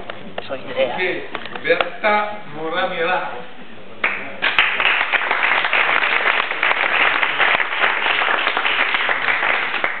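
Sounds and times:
people applauding: 4.0s - 10.0s.

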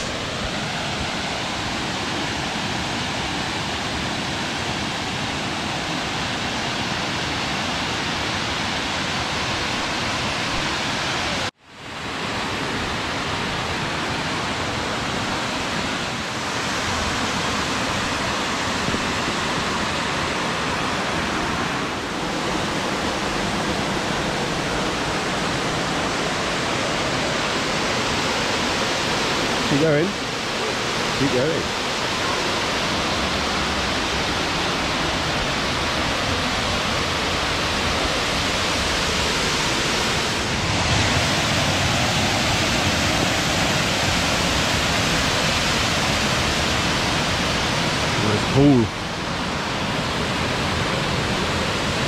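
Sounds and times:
waterfall rushing: 0.0s - 52.0s.

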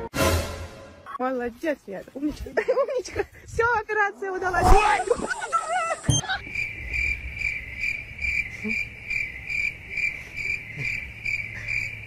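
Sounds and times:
cricket chirping: 4.9s - 12.0s.

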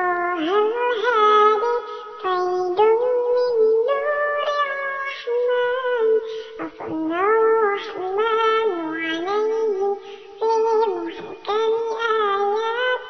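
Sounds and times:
high voice chanting devotional song: 0.0s - 13.0s
singer breathing: 1.8s - 2.2s, 6.2s - 6.7s, 10.0s - 10.4s.

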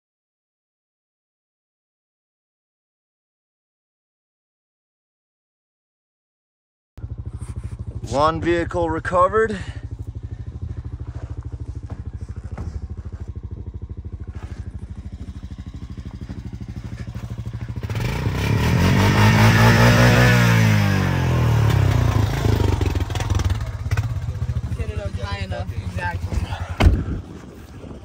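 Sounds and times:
engine revving: 7.0s - 27.2s
engine idling: 7.0s - 28.0s.

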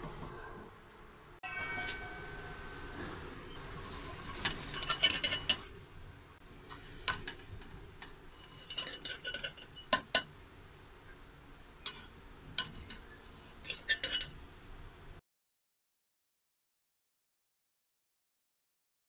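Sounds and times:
metal spoon scraping a pot: 3.8s - 5.8s, 6.7s - 10.3s, 11.8s - 14.4s.

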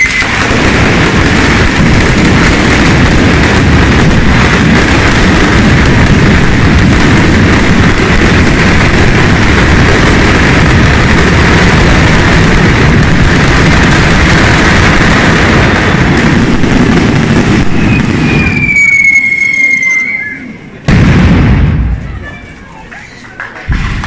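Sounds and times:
firecrackers crackling: 0.0s - 24.0s
high falling whistle tone: 17.9s - 20.6s.

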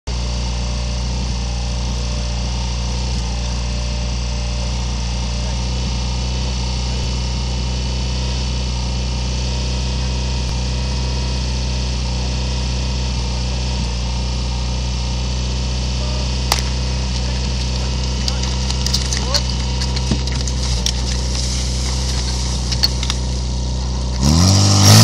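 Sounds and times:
pump engine idling: 16.0s - 25.0s
sharp crack: 16.5s - 23.5s.

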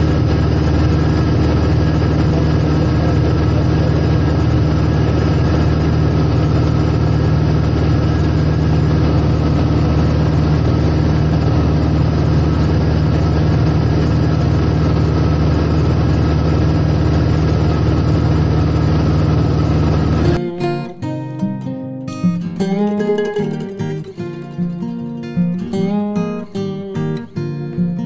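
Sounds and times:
aircraft engine and propeller: 0.0s - 20.4s
acoustic guitar music: 20.0s - 28.0s.

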